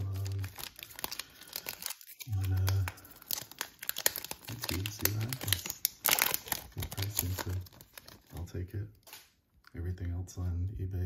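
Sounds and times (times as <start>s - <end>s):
wrapper tearing: 0.0s - 9.3s
plastic wrapper crinkling: 0.0s - 9.4s.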